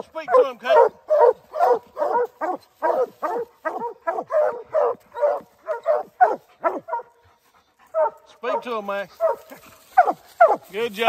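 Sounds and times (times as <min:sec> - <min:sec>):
hounds barking: 0:00.0 - 0:10.8.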